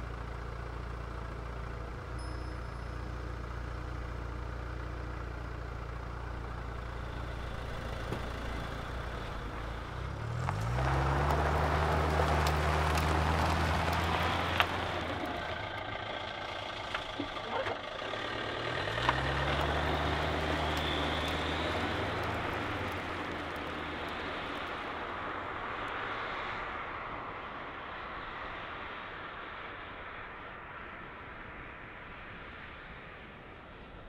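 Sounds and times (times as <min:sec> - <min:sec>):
small car engine revving: 0:00.0 - 0:25.0
road and wind noise: 0:00.0 - 0:34.0.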